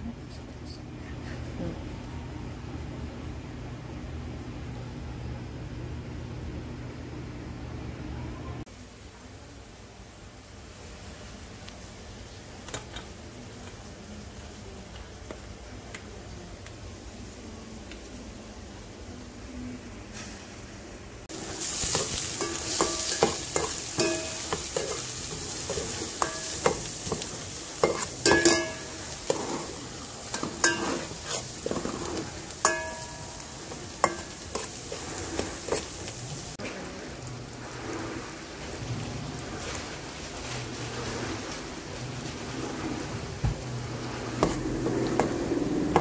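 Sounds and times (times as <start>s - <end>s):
garlic sizzling in hot oil: 21.3s - 46.0s
metal spoon clinking on pot: 21.9s - 29.5s, 30.3s - 34.7s.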